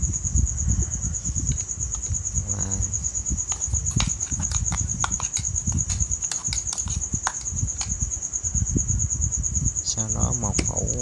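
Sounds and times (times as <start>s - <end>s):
metal spoon scraping ceramic bowl: 3.5s - 7.5s.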